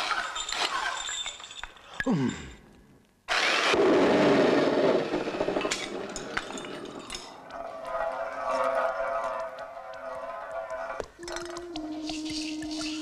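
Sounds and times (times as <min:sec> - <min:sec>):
shattering crash: 0:03.3 - 0:08.5
held multi-pitch tone: 0:08.4 - 0:13.0.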